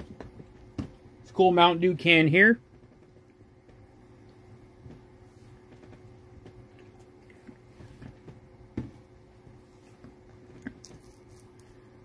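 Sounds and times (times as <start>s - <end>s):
steady low hum: 0.0s - 12.0s
faint handling noises: 2.6s - 11.9s.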